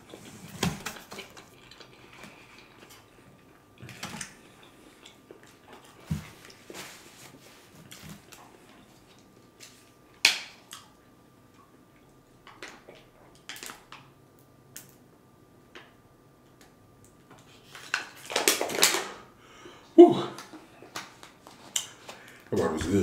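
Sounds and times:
plastic bottle crinkling: 17.7s - 19.2s.

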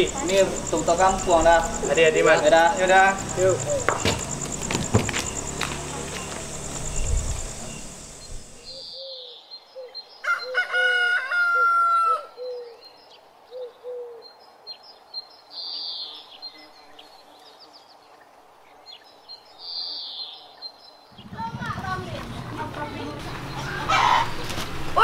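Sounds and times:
small birds chirping: 0.0s - 10.7s, 12.3s - 25.0s
rooster crowing: 10.2s - 12.5s, 23.6s - 24.4s.

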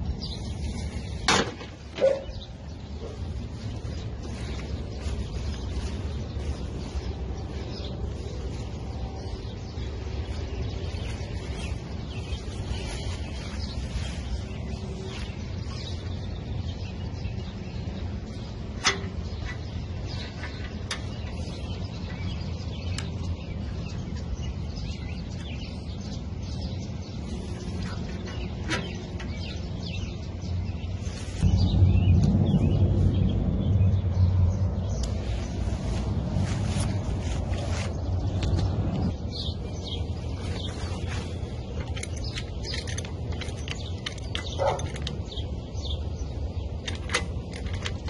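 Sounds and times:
low rumble: 30.1s - 42.0s.

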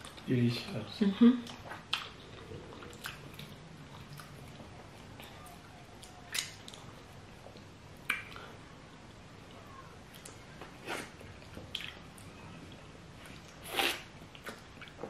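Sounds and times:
wet mouth smacks: 8.0s - 8.4s.

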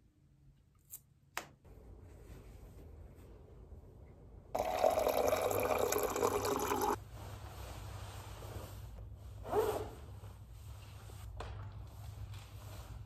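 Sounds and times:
water pouring into a glass: 4.6s - 7.0s.

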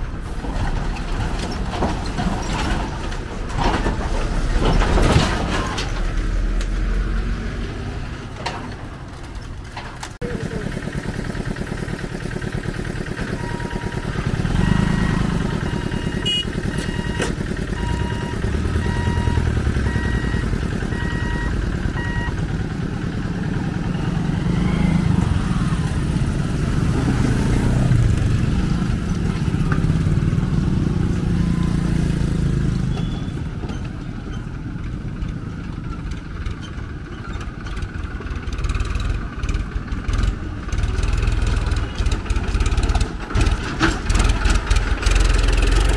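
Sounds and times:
tractor diesel engine chugging: 8.1s - 45.9s
motorcycle engines passing: 10.2s - 43.5s
electronic beeping: 13.4s - 22.4s.

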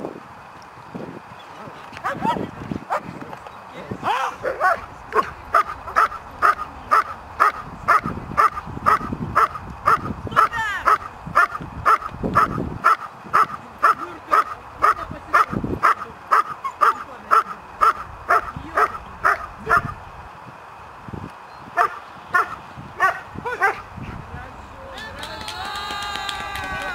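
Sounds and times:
dog barking: 4.4s - 10.1s, 10.8s - 19.9s, 21.8s - 23.9s.

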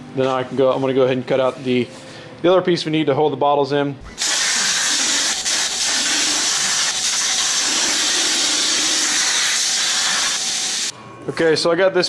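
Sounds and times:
plasma torch hissing: 4.1s - 10.9s.

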